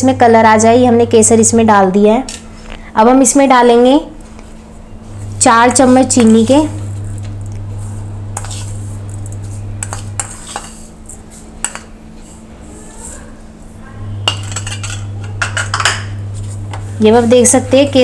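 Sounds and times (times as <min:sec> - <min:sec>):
low hum: 0:04.8 - 0:10.4.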